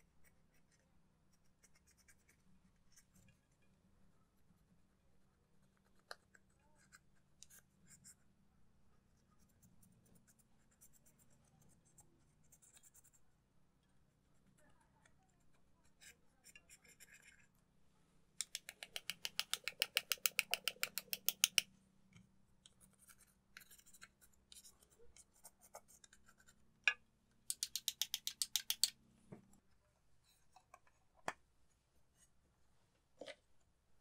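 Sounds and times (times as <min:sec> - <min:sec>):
light clicks and taps: 0:18.4 - 0:25.3, 0:26.9 - 0:29.7.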